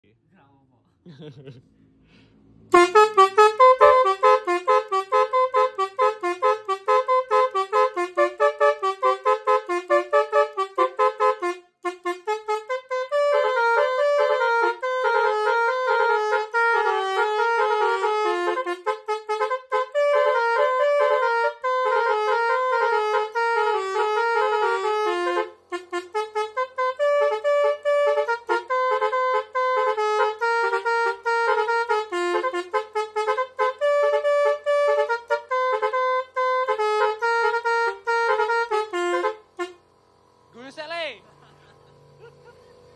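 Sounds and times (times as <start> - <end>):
truck air horns playing melody: 2.7 - 42.9.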